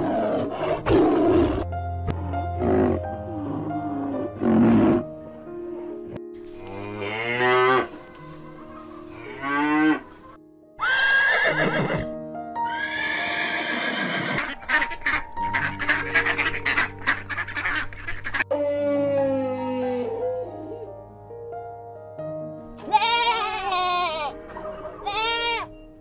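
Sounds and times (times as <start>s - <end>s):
light background music: 0.0s - 26.0s
cow mooing: 6.6s - 8.0s
horse whinnying: 10.8s - 12.1s, 12.7s - 14.6s, 22.8s - 25.7s.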